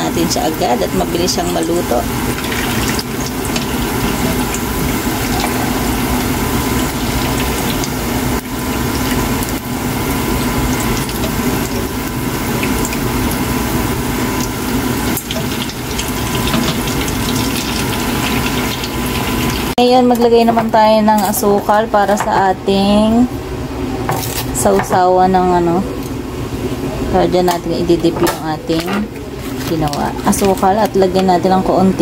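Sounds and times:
hot oil sizzling: 0.0s - 20.4s.

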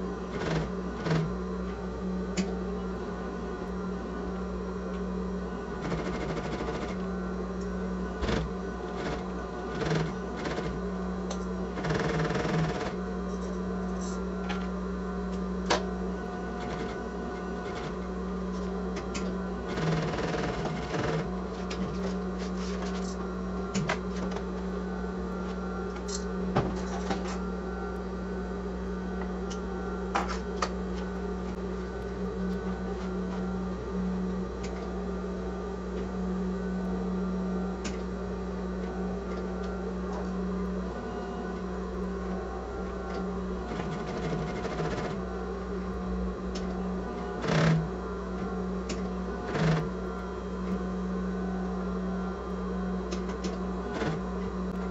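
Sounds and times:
sewing machine running: 0.3s - 1.3s, 5.8s - 7.0s, 8.2s - 10.9s, 11.7s - 13.0s, 16.5s - 18.0s, 19.1s - 22.0s, 43.6s - 45.2s.

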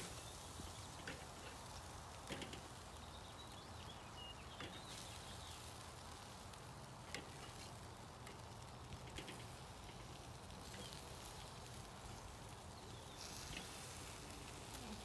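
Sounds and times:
chicken sizzling on a grill: 0.0s - 15.0s
metal tongs clicking on grate: 7.1s - 11.0s.

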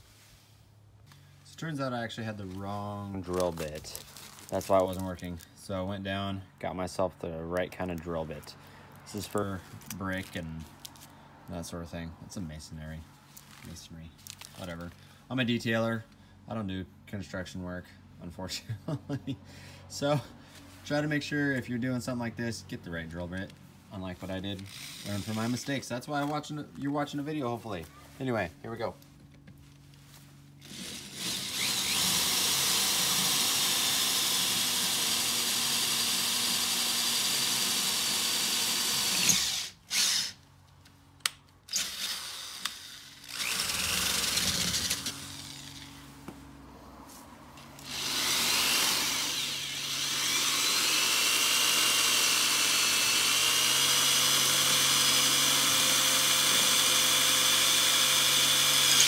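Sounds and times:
power drill boring into brick: 24.6s - 25.7s, 30.6s - 40.4s, 41.7s - 45.9s, 47.8s - 59.0s.

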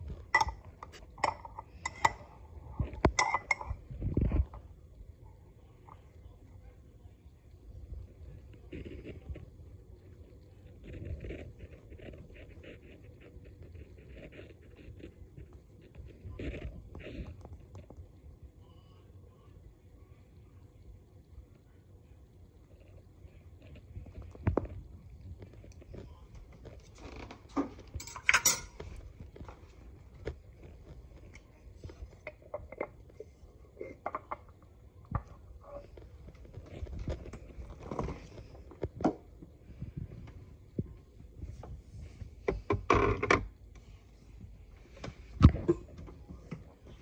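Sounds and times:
glass jar knocking and scraping: 0.2s - 2.2s, 2.8s - 4.5s, 27.7s - 29.0s
knife clinking on glass jar: 28.0s - 28.8s.

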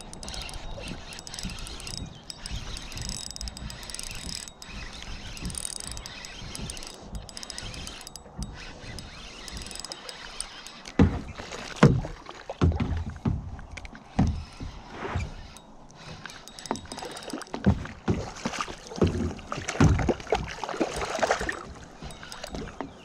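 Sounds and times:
fishing reel gears ticking: 0.0s - 11.8s, 14.4s - 17.8s, 21.0s - 22.9s
water lapping at a kayak: 0.0s - 23.0s.

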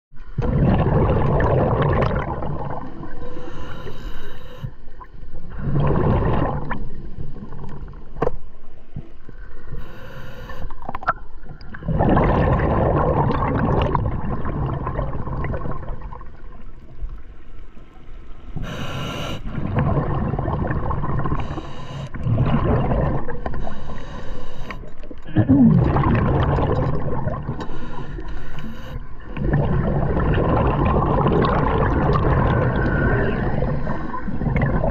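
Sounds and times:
underwater exhaled bubbles gurgling: 0.2s - 34.9s
breathing through regulator: 3.2s - 4.8s, 9.7s - 10.8s, 18.6s - 19.5s, 21.2s - 26.7s, 27.5s - 29.6s.

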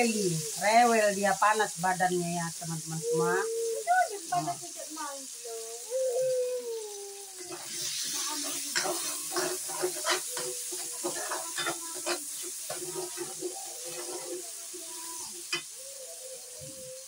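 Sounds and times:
faint sizzle of paste frying: 0.0s - 17.0s
metal spatula scraping wok: 7.4s - 15.7s.

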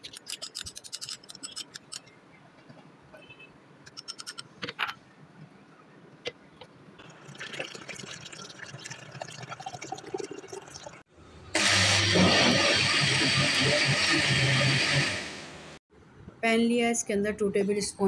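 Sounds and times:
water pouring into plastic jug: 7.0s - 11.0s
electric blender motor running: 11.6s - 15.6s.

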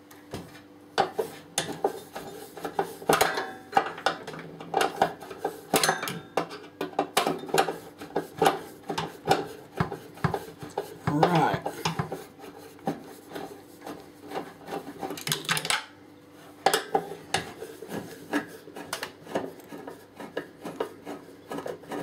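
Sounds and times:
tools scraping sheet metal: 16.8s - 22.0s.

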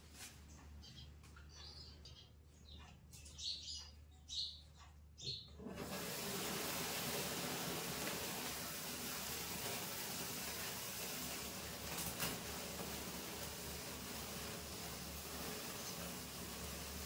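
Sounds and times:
sparkler fizzing: 5.7s - 17.0s.

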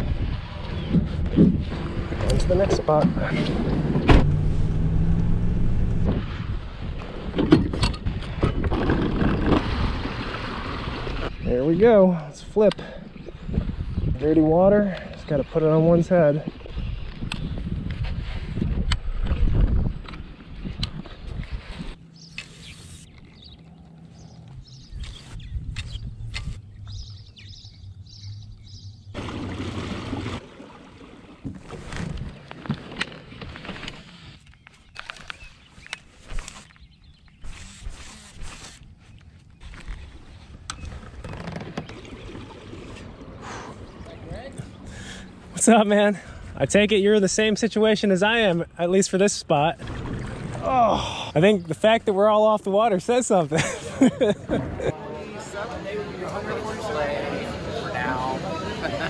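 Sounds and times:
water noise: 0.0s - 17.6s, 27.9s - 35.3s, 37.4s - 46.0s, 49.2s - 53.2s
small birds chirping: 21.9s - 29.2s, 34.2s - 38.0s, 43.3s - 45.6s.

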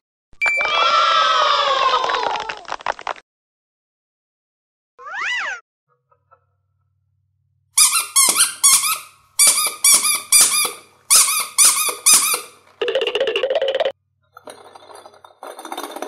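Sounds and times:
rubber squeeze toy squeaking: 7.8s - 12.6s.

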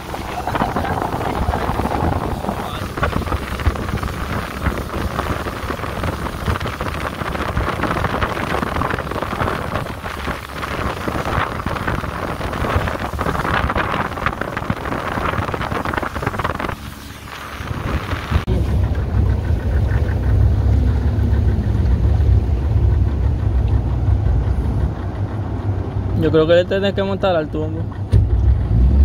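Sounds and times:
wind on microphone: 0.0s - 26.2s
outboard motor running: 0.0s - 29.0s.

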